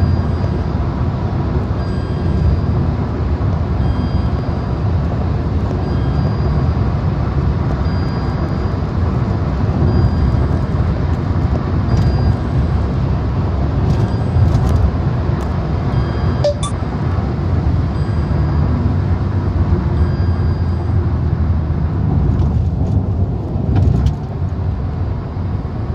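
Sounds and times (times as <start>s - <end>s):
road and engine noise in car: 0.0s - 25.9s
faint high beep: 3.8s - 4.8s, 16.0s - 16.8s.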